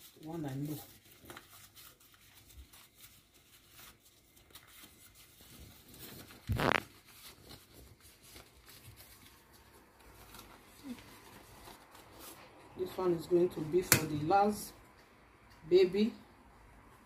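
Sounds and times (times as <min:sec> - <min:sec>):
leaf crackle: 0:00.0 - 0:13.0
leaf rustling and crinkling: 0:00.0 - 0:13.3.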